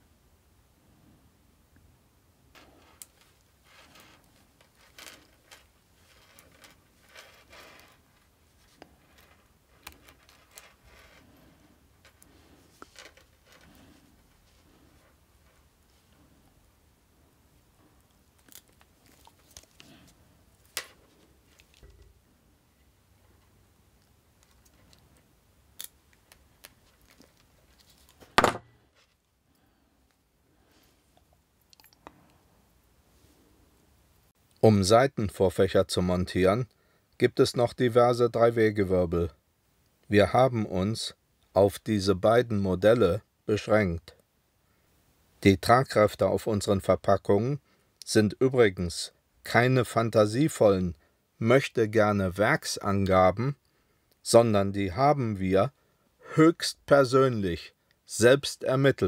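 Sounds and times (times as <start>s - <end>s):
wire winding rustles and ticks: 2.5s - 16.2s, 18.0s - 22.1s, 24.0s - 28.4s.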